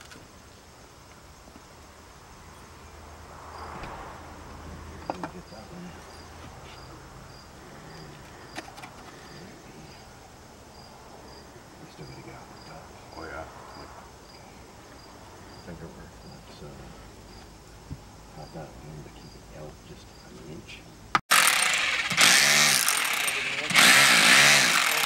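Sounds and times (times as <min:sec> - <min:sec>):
cricket chirping: 0:00.0 - 0:21.2.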